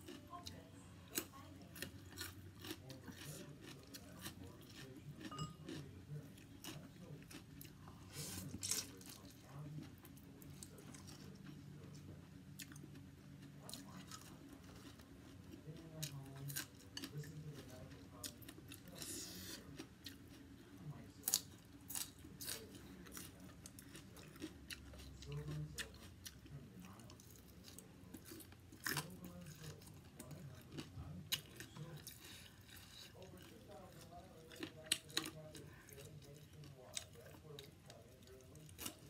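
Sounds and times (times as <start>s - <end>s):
chewing and crunching food: 0.0s - 39.0s.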